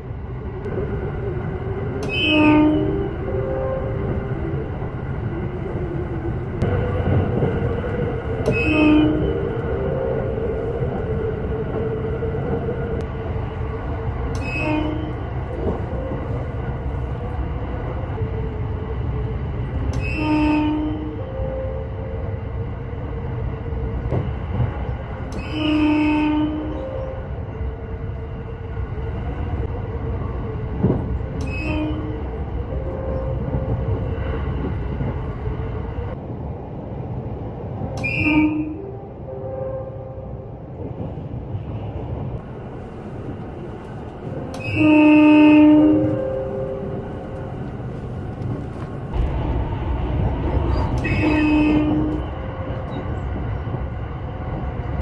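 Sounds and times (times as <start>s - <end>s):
train running on rails: 0.0s - 55.0s
train horn blasts: 2.0s - 4.0s, 8.4s - 10.2s, 14.3s - 15.3s, 19.9s - 22.2s, 25.3s - 27.3s, 31.4s - 33.9s, 37.9s - 40.5s, 44.3s - 47.3s, 50.7s - 53.0s.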